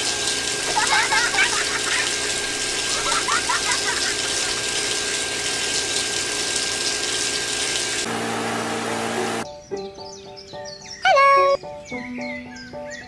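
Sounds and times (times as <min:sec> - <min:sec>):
high-pitched squeaky voices: 0:11.0 - 0:11.6.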